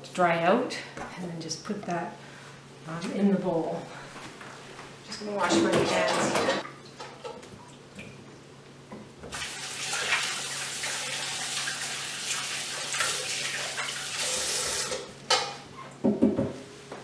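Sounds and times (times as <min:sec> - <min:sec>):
faucet running into sink: 0:09.3 - 0:15.1.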